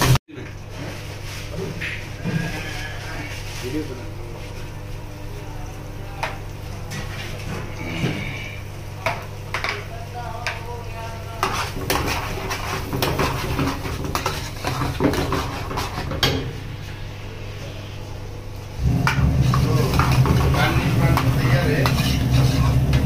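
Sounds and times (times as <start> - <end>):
steady low hum: 0.0 - 23.0
ladle scraping metal frying pan: 11.4 - 16.4, 19.0 - 23.0.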